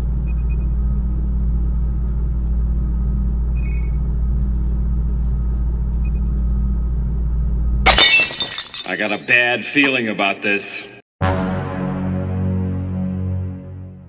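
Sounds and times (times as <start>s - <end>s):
deep rumbling drone: 0.0s - 7.9s
high electronic beeps: 3.6s - 6.6s.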